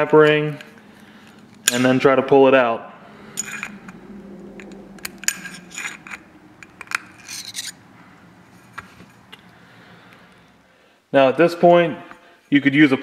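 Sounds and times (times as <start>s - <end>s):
metal scraping in bore: 0.0s - 10.8s.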